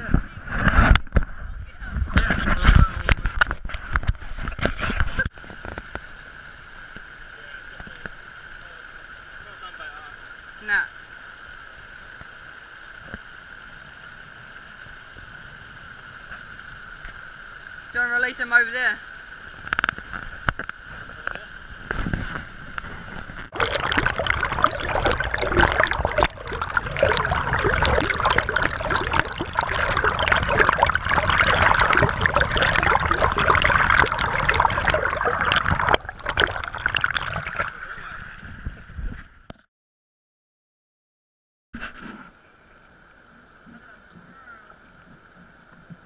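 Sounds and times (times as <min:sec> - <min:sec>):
stream water rushing underwater: 0:19.3 - 0:38.5.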